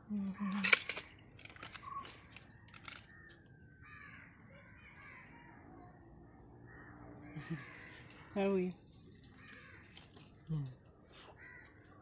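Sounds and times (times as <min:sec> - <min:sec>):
faint harsh bird calls: 0:00.2 - 0:12.0.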